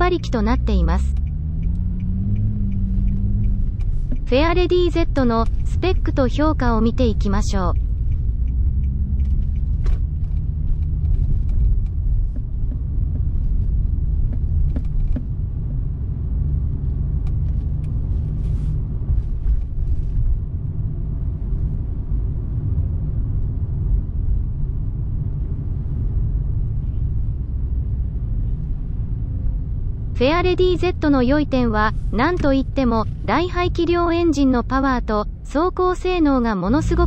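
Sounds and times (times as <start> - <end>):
car engine and road noise: 0.0 - 37.0
faint light ticks: 7.7 - 12.8.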